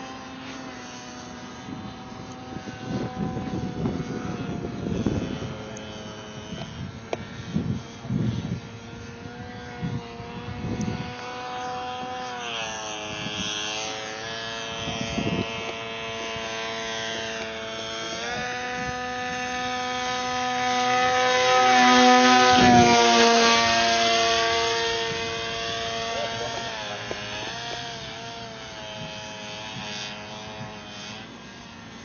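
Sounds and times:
model airplane motor whining: 0.0s - 32.0s.

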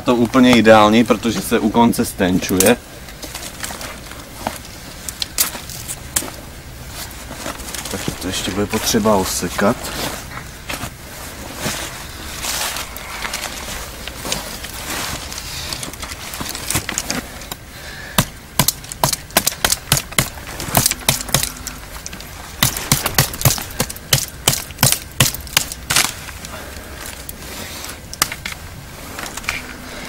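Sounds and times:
knife chopping twigs: 18.2s - 21.8s, 22.6s - 26.2s.

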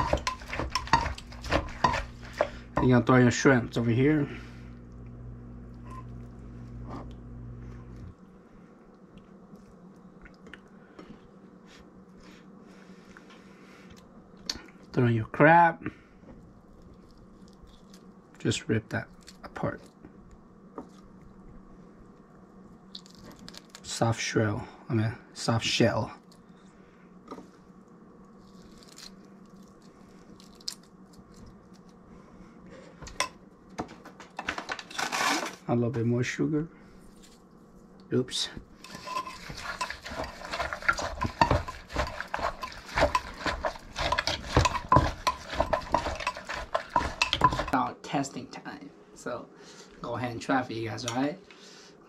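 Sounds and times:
low steady hum: 0.0s - 52.0s
wet crackling and squishing: 22.8s - 23.9s, 28.3s - 32.0s.

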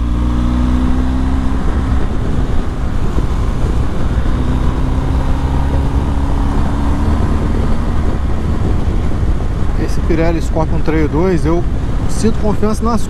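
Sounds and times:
wind noise on microphone: 0.0s - 13.0s.

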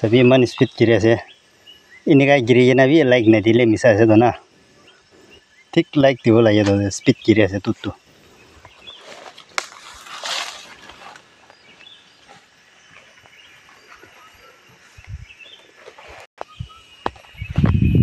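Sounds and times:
faint bird chirps: 11.5s - 15.7s, 16.4s - 18.0s.

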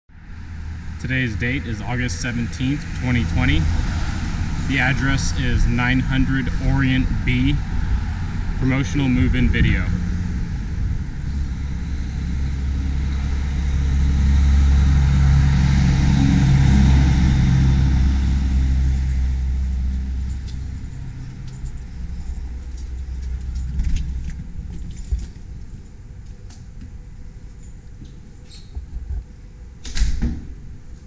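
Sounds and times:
vehicle engine running: 0.3s - 28.1s.

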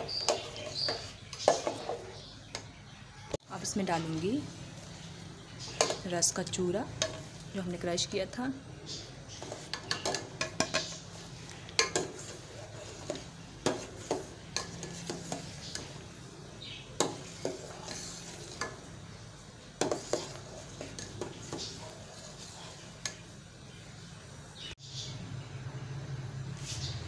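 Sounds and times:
ladle scraping metal pot: 0.0s - 2.6s, 9.3s - 16.0s, 17.0s - 18.9s, 19.7s - 23.2s.

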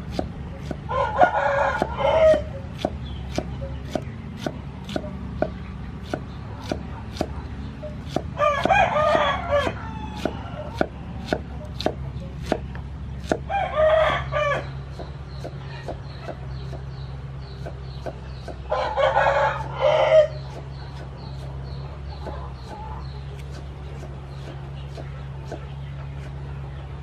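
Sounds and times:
cleaver chopping on wooden board: 0.0s - 0.9s, 1.7s - 7.4s, 8.0s - 13.5s, 14.6s - 16.8s, 17.6s - 18.7s
rooster crowing: 0.9s - 2.5s, 8.3s - 10.8s, 13.5s - 14.7s, 18.7s - 20.4s.

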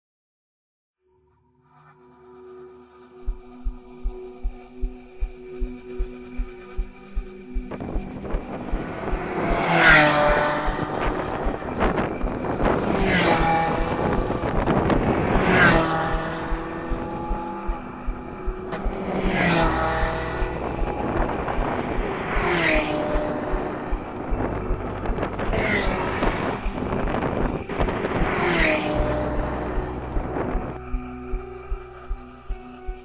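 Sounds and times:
sports car engine revving past: 7.7s - 32.1s.

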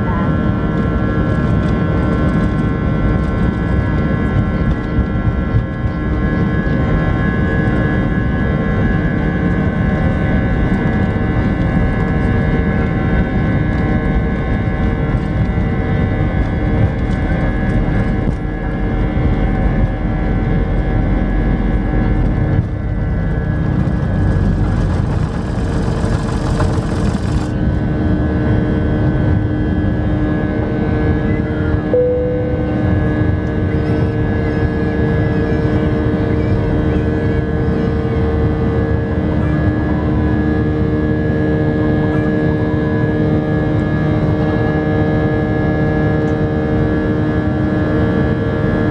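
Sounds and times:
jet engines whining: 0.0s - 48.8s
takeoff roll rumble: 10.4s - 35.2s.

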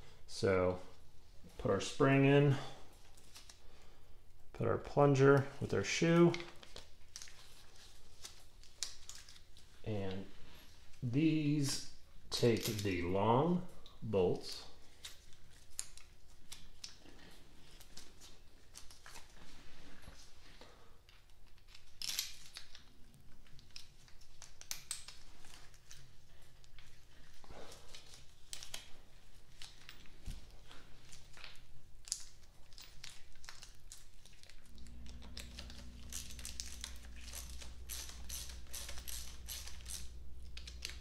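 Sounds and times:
latex glove rustle: 6.1s - 11.8s, 21.6s - 41.0s
low hum: 34.4s - 41.0s.

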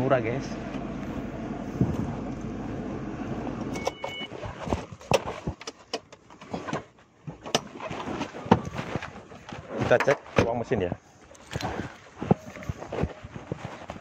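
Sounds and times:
car engine idling: 0.0s - 3.8s
electronic warning chime: 3.7s - 4.4s.

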